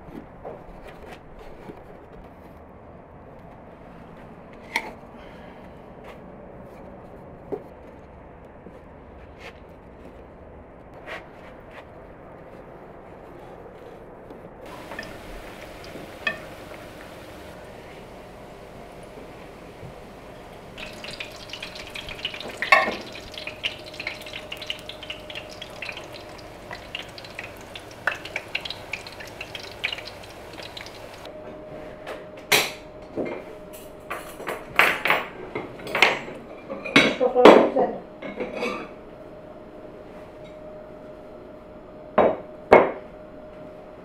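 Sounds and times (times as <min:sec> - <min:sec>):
metal utensils clinking on dishes: 0:14.7 - 0:17.2, 0:20.8 - 0:26.2.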